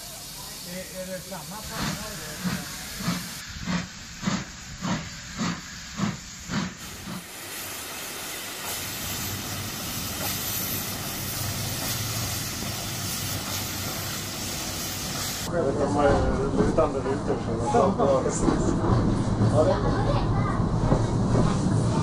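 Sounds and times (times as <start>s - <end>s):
steam hissing: 0.0s - 15.5s
steam locomotive exhaust chuffs: 0.0s - 15.5s.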